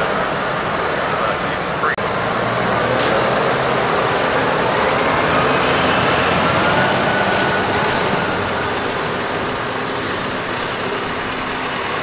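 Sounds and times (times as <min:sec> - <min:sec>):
tractor diesel engine running: 0:05.4 - 0:12.0.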